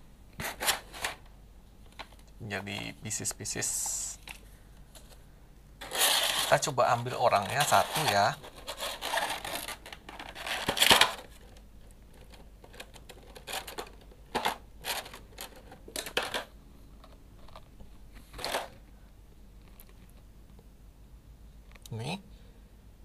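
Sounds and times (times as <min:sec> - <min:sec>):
plastic tray crinkling: 0:05.8 - 0:18.8.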